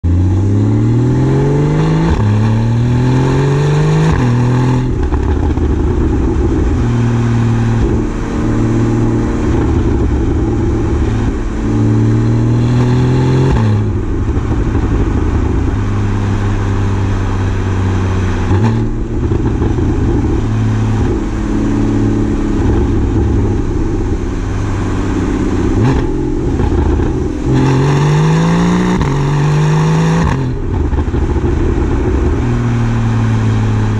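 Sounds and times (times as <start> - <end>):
car exhaust revving through gears: 0.0 - 33.9.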